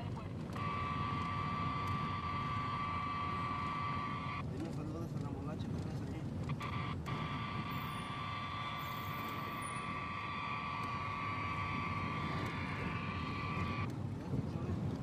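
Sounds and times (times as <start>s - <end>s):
steady high-pitched tone: 0.6s - 4.5s, 6.5s - 13.9s
radio channel hiss: 0.6s - 13.9s
low rumbling drone: 6.4s - 13.9s.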